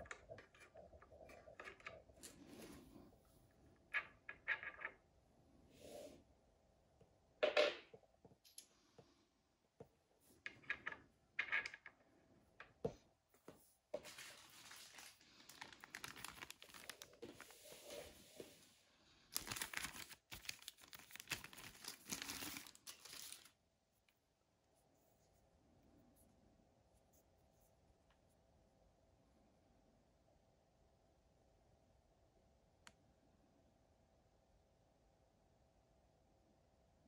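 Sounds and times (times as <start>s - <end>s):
plastic bag crinkling: 14.1s - 17.9s, 19.3s - 23.6s.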